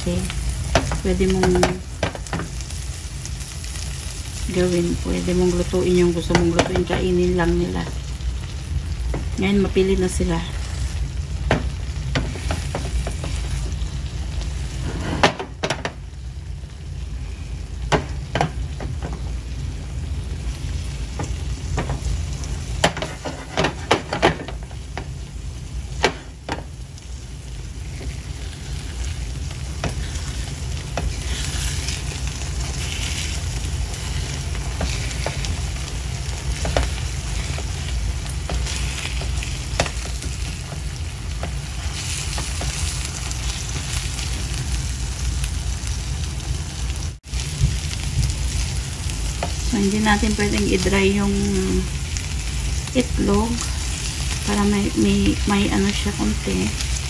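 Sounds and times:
egg frying and sizzling: 0:00.0 - 0:57.0
low steady hum: 0:00.0 - 0:57.0
spatula stirring in a pan: 0:08.2 - 0:13.8, 0:21.1 - 0:25.2, 0:25.9 - 0:44.8.

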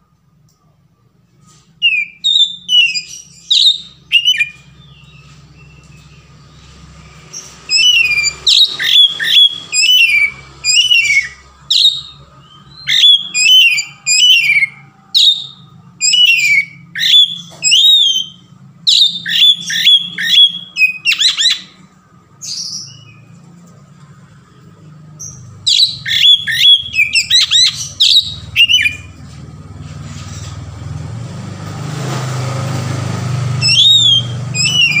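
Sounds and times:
bird singing whistled notes: 0:01.8 - 0:21.8, 0:25.2 - 0:29.2, 0:33.5 - 0:35.0.

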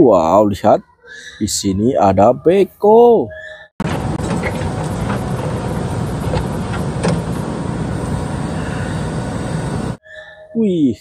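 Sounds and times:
digger arm knocking on rocky ground: 0:03.8 - 0:07.8
diesel engine running: 0:03.8 - 0:10.0.

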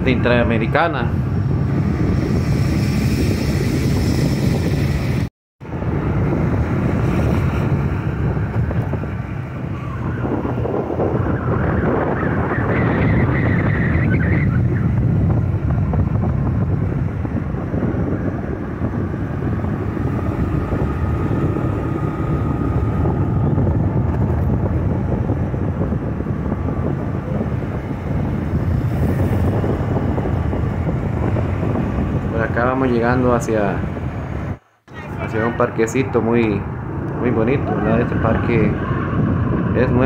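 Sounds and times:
vehicle road and engine noise: 0:00.0 - 0:40.0
wind rumbling on microphone: 0:00.0 - 0:40.0.

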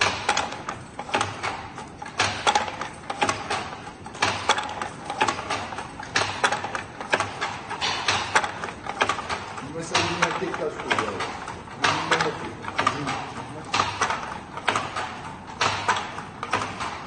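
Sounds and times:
hand loom knocking and clacking: 0:00.0 - 0:17.0.

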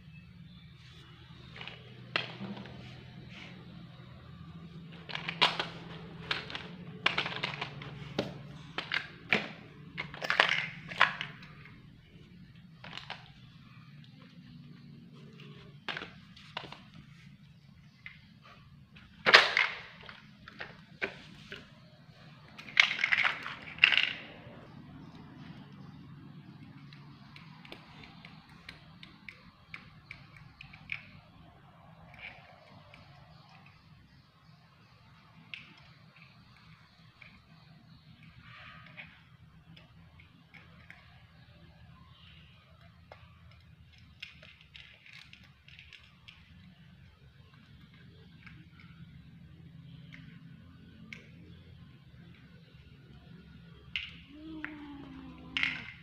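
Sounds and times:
faint low hum: 0:00.0 - 0:56.0
plastic toys clacking together: 0:01.0 - 0:14.6, 0:15.2 - 0:56.0
teeth clicking on plastic: 0:22.5 - 0:34.2, 0:42.2 - 0:56.0.

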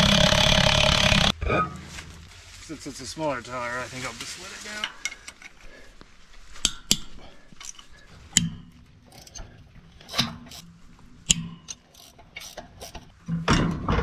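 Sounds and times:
wrench clicking on bolts: 0:11.3 - 0:13.1.

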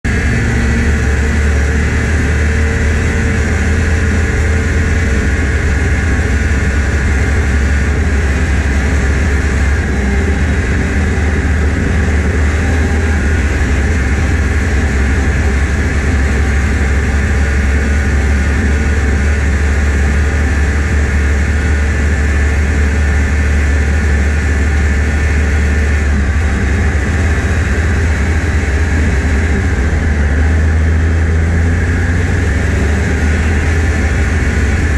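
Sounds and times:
snowmobile engine running: 0:00.0 - 0:34.9.

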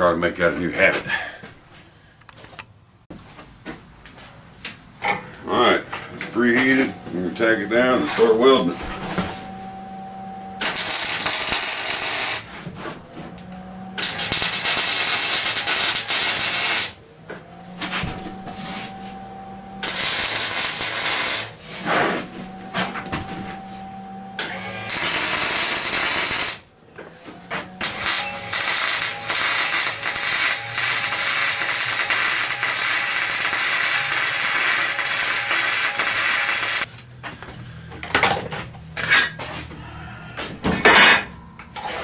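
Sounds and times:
arc welding sizzle: 0:10.6 - 0:12.6, 0:14.0 - 0:17.0, 0:19.8 - 0:21.6, 0:24.4 - 0:26.7, 0:27.8 - 0:36.9.

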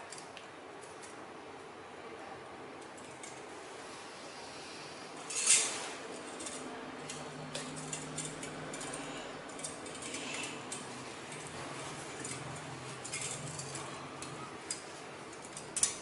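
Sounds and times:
clinks of aluminium strips: 0:05.2 - 0:16.0.

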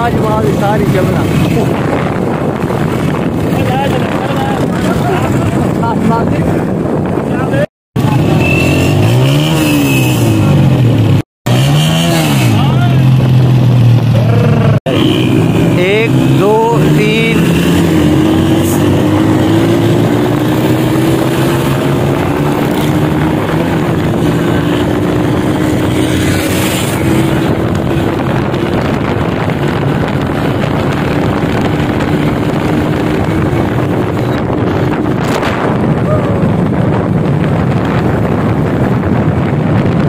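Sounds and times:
wind buffeting microphone: 0:00.0 - 0:11.2, 0:12.5 - 0:40.0
motorcycle engine running: 0:08.0 - 0:40.0.

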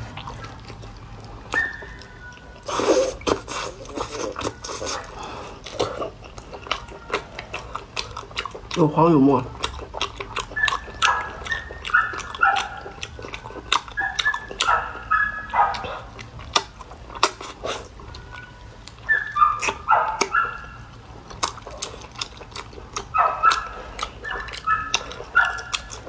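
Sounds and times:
wet chewing and mouth clicks: 0:00.0 - 0:26.0.

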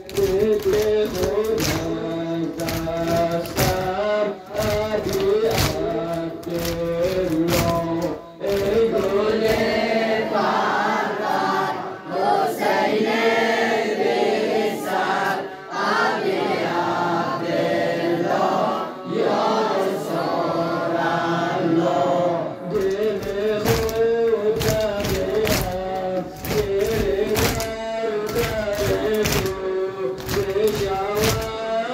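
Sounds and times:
hands slapping chests: 0:00.0 - 0:09.8, 0:22.7 - 0:31.6
men chanting together: 0:00.0 - 0:31.9.

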